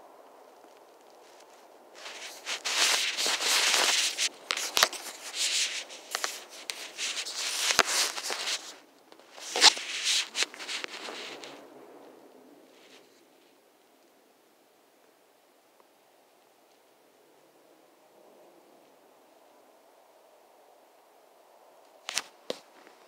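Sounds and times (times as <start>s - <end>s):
fabric rubbing on microphone: 1.2s - 11.6s.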